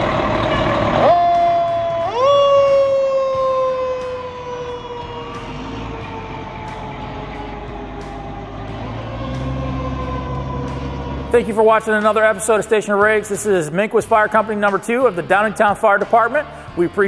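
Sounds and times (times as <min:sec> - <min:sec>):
low engine rumble: 0:00.0 - 0:17.0
mechanical siren winding down: 0:00.2 - 0:11.6.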